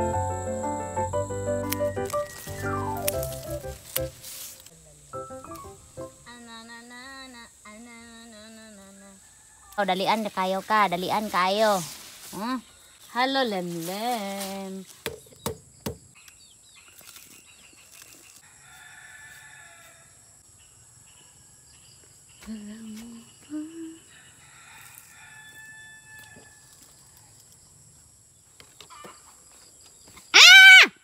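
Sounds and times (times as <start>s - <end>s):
rooster crowing: 9.1s - 9.8s, 18.4s - 20.4s, 24.1s - 26.9s.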